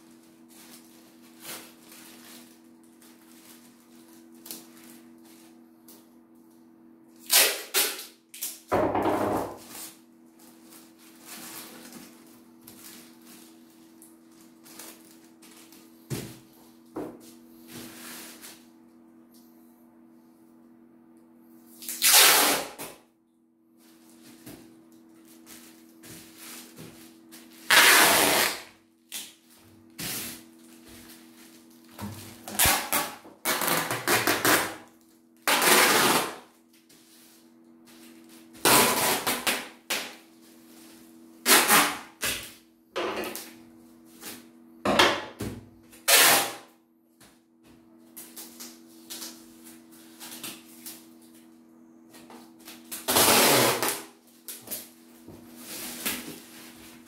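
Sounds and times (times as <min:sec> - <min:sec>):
plastic bag crinkling: 0:00.0 - 0:05.6, 0:09.6 - 0:15.9
packing tape ripping off roll: 0:07.2 - 0:08.7, 0:21.8 - 0:23.0, 0:27.5 - 0:29.4, 0:30.0 - 0:36.5, 0:38.6 - 0:40.2, 0:41.4 - 0:42.6, 0:46.0 - 0:46.7, 0:52.6 - 0:54.9.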